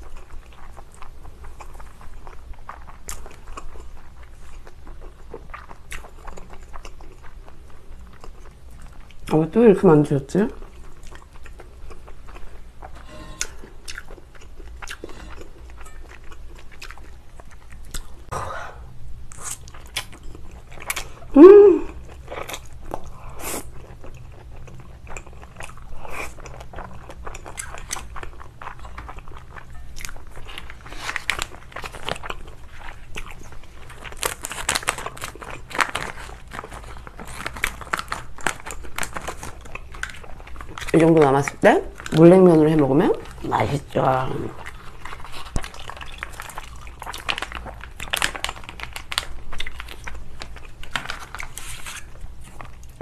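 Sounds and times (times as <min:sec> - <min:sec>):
person chewing and slurping noodles: 0:00.0 - 0:09.3, 0:10.6 - 0:21.3, 0:21.9 - 0:40.9, 0:44.5 - 0:53.0
person humming: 0:21.3 - 0:22.0.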